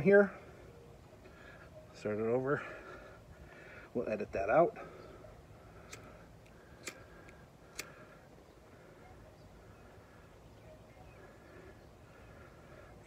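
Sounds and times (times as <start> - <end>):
hand lighter clicks: 5.9 - 8.0.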